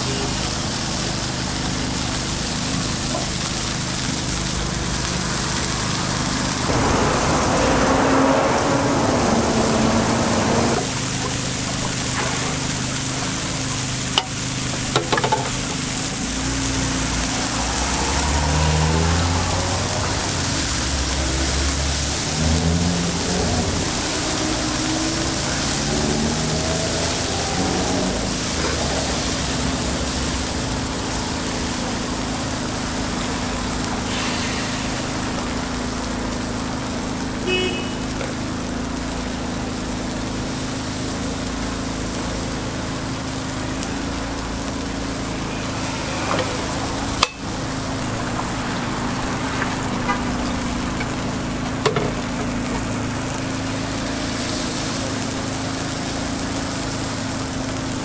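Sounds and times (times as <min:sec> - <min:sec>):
batter sizzling on griddle: 0:00.0 - 0:58.0
street traffic: 0:00.0 - 0:58.0
low hum: 0:06.2 - 0:13.2.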